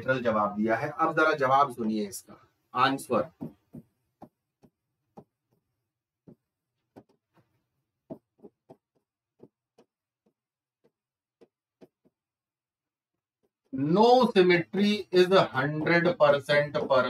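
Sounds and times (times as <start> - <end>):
chalk tapping on blackboard: 3.2 - 7.3, 8.1 - 12.2, 14.8 - 17.0.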